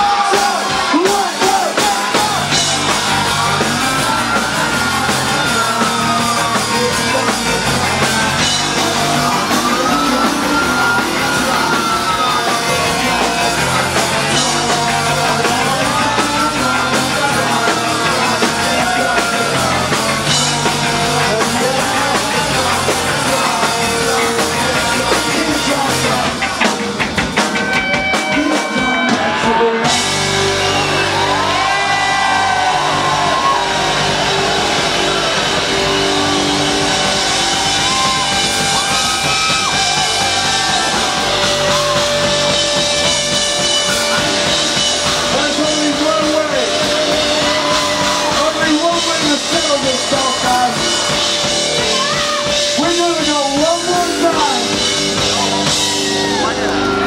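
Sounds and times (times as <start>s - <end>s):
rock band playing loud: 0.0s - 57.0s.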